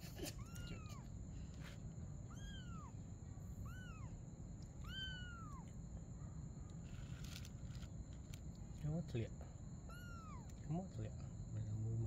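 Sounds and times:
kitten meowing: 0.2 - 1.1, 2.3 - 3.0, 3.6 - 4.2, 4.8 - 5.7, 9.9 - 10.6.

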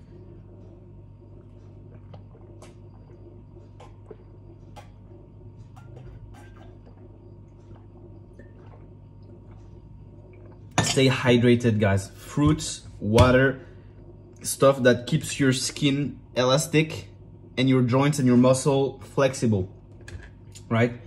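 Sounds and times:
person swallowing water: 0.0 - 10.8
low hum: 0.0 - 21.0.

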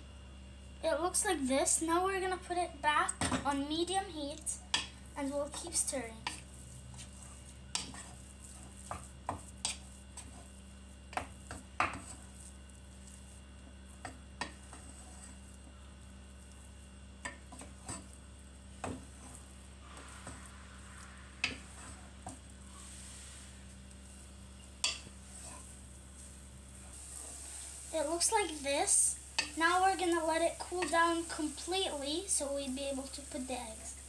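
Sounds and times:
steady low hum: 0.0 - 34.0
wooden spoon scraping a pot: 5.4 - 28.6.

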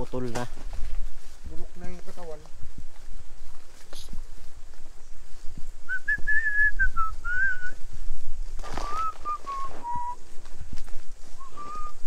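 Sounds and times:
rustling: 0.0 - 12.0
person whistling a tune: 5.9 - 7.8, 8.8 - 10.2, 11.4 - 12.0.

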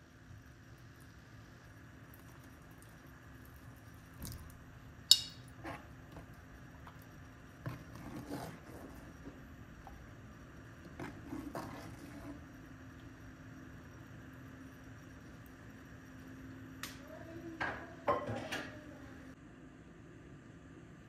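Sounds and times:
metal ladle clinking on pot: 5.1 - 5.5
ladle stirring thick soup: 5.1 - 13.1.

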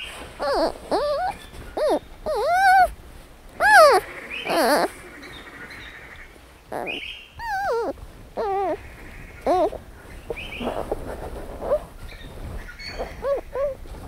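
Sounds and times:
panda cubs bleating and squealing: 0.4 - 2.9, 3.6 - 4.9, 6.7 - 8.8, 9.5 - 9.8.

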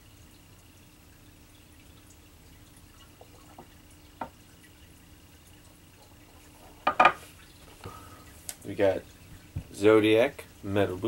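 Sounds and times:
shot glass set down on wood: 6.8 - 7.2.

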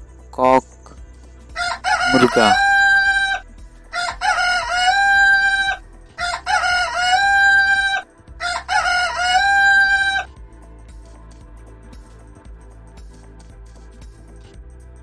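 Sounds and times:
rooster crowing: 1.6 - 10.3.

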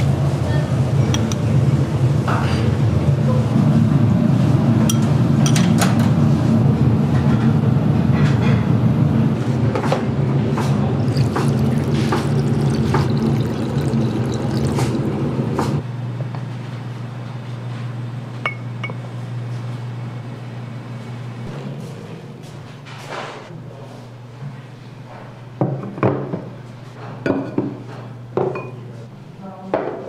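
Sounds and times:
steady low hum: 6.2 - 24.3
broth pouring into a bowl: 10.9 - 15.8
ceramic bowls and utensils clinking: 11.0 - 15.8.

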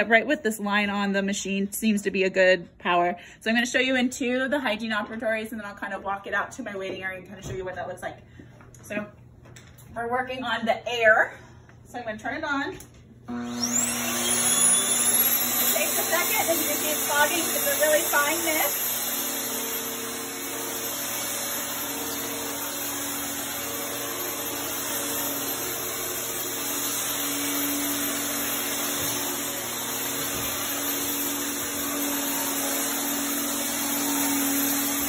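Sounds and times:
electric fogger whirring: 13.3 - 35.0.

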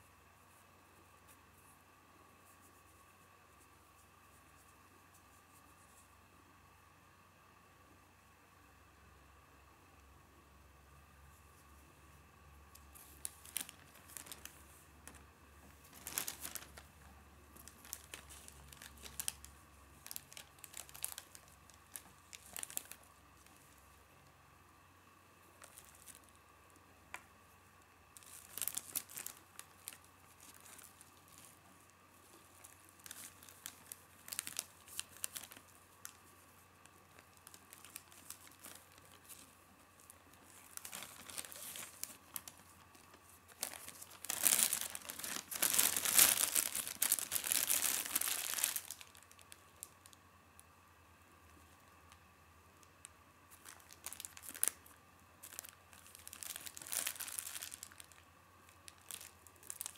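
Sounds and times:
plastic bag crinkling: 12.8 - 24.0, 25.4 - 26.4, 28.2 - 50.2, 53.5 - 59.9.

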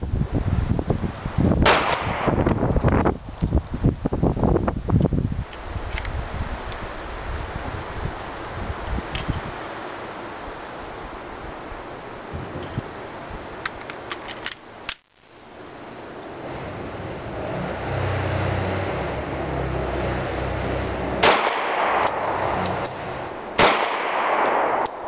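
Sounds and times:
pistol shots with short echo: 1.7 - 2.4, 23.6 - 25.0.

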